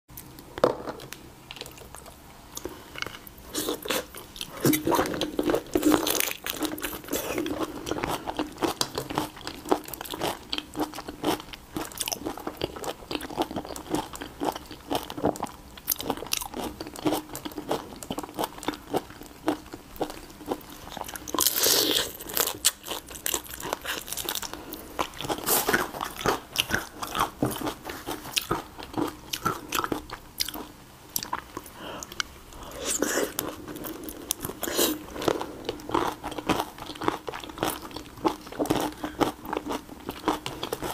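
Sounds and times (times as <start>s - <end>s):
wet chewing and sucking: 16.2s - 30.6s, 31.2s - 40.9s.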